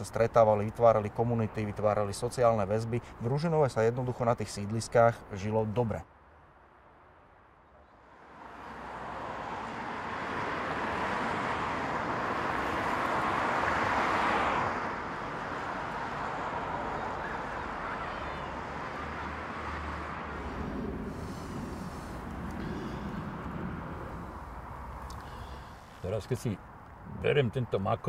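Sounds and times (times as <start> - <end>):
cars passing: 0.0 - 28.0
steady hum of traffic: 0.0 - 28.0.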